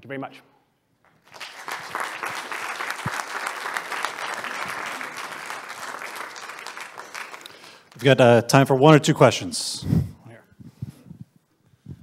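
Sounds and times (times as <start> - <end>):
audience applauding: 1.0 - 8.3.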